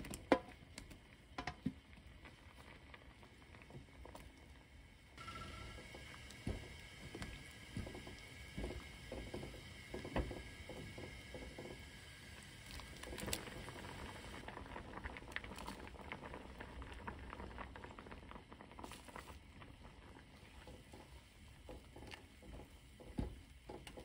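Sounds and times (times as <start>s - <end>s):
stew bubbling in a pan: 0.0s - 24.0s
spatula stirring and tapping: 0.1s - 2.0s.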